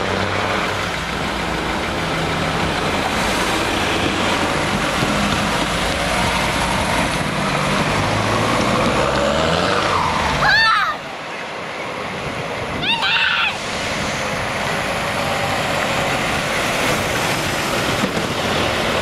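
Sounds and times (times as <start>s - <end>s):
truck diesel engine running: 0.0s - 9.2s, 13.6s - 19.0s.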